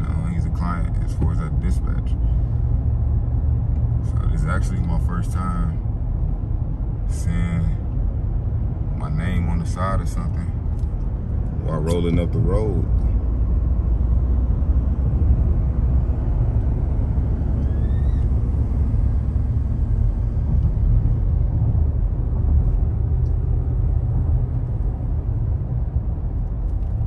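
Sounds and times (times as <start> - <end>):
car interior road rumble: 0.0 - 27.0.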